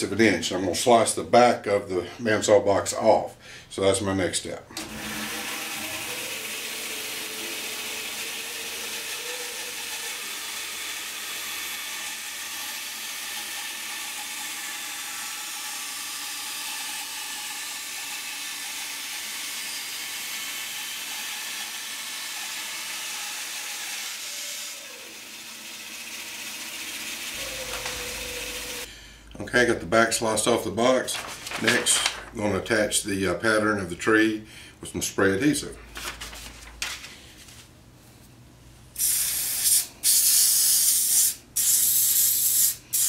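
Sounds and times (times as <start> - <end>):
bandsaw cutting wood: 4.8 - 28.9.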